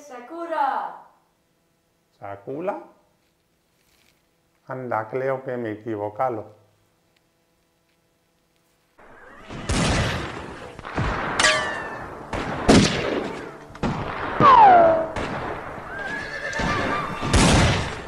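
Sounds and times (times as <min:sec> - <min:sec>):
gunshots with echoing tail: 0:09.0 - 0:15.9, 0:17.2 - 0:18.0
ricochet whine: 0:09.0 - 0:18.0.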